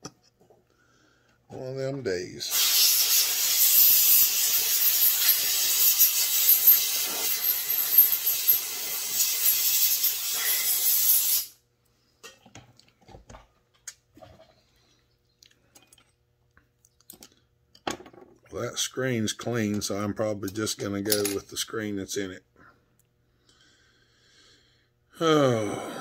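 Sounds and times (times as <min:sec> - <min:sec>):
pressurised air jet hissing: 0:02.5 - 0:11.6
small metal parts clicking: 0:05.2 - 0:08.6.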